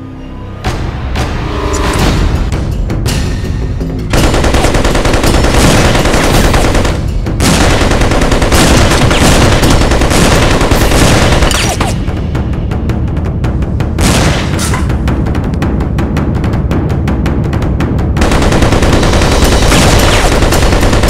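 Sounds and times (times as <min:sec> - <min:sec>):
rapid machine-gun fire: 0:04.1 - 0:12.0, 0:18.2 - 0:21.0.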